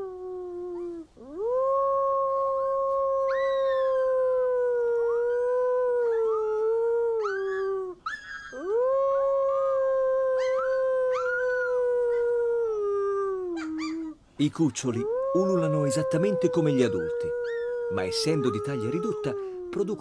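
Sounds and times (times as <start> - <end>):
man imitating wolf howls: 0.0 - 0.7, 1.4 - 13.7, 14.8 - 20.0
wolf pup howling and yelping: 0.0 - 14.2, 14.8 - 20.0.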